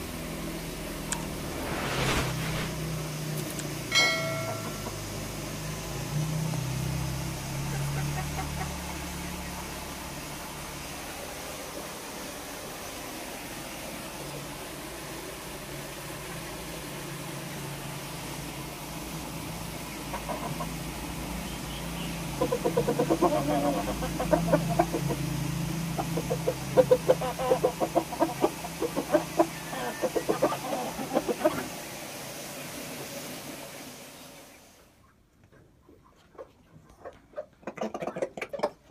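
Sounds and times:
chickens clucking: 0:07.6 - 0:10.6, 0:19.8 - 0:32.0, 0:35.0 - 0:38.9.

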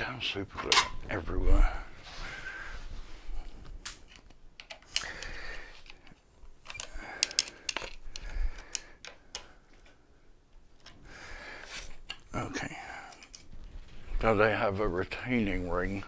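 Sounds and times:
clicks and knocks of plastic parts: 0:03.8 - 0:10.0.

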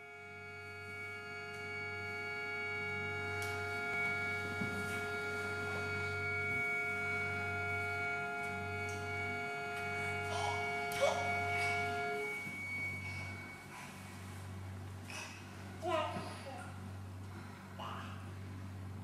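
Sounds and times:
accordion sustained chord: 0:00.0 - 0:14.5
low drone: 0:00.0 - 0:19.0.

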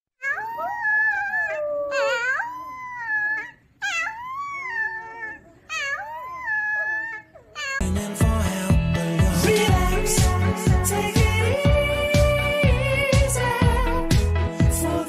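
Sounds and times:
puppy howling: 0:00.2 - 0:07.8.

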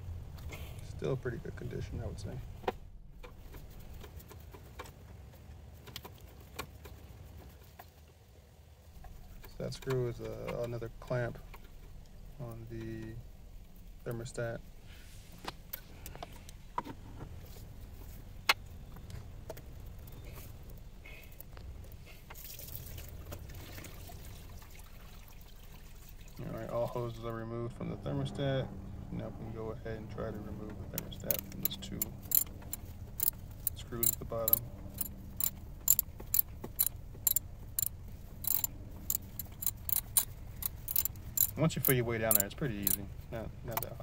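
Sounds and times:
trickle of coolant: 0:20.0 - 0:27.3
hose clicks and rustling: 0:30.9 - 0:43.0.

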